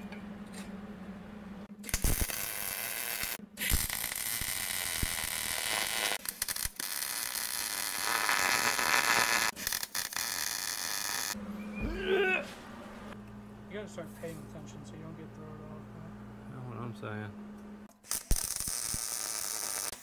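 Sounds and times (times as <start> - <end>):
welding arc crackling and hissing: 1.8 - 11.4, 18.0 - 20.0.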